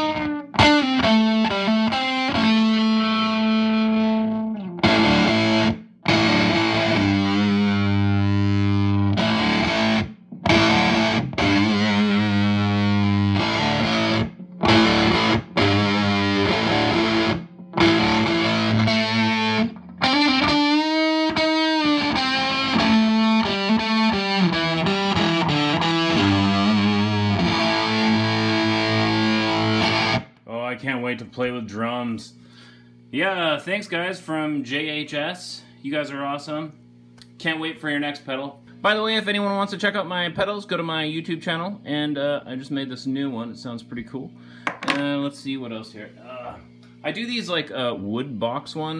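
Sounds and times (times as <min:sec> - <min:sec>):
distorted electric guitar: 0:00.0 - 0:30.4.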